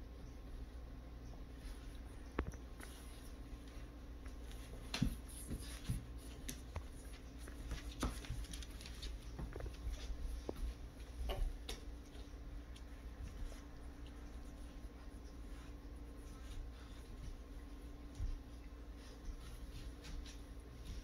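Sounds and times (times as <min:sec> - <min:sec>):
dogs play-wrestling thumps and scuffles: 0:02.4 - 0:21.0
paw clicks on wooden floor: 0:04.6 - 0:14.2.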